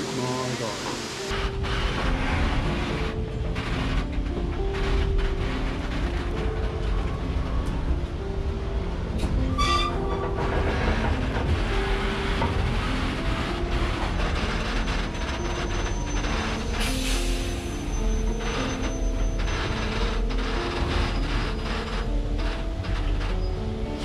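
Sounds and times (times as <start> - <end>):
train rumbling over bridge: 0.0 - 24.0
train wheels clattering on rails: 0.0 - 24.0
high wheel squeal: 9.5 - 11.1, 11.9 - 23.6.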